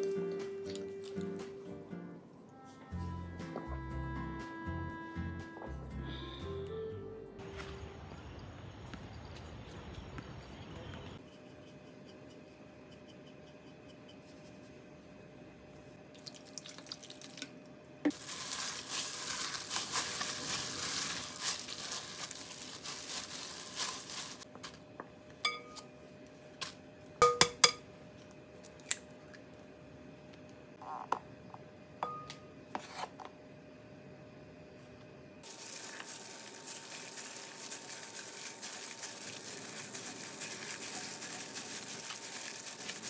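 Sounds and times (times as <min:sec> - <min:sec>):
plastic bag crinkling: 0:18.1 - 0:24.5, 0:35.4 - 0:43.0.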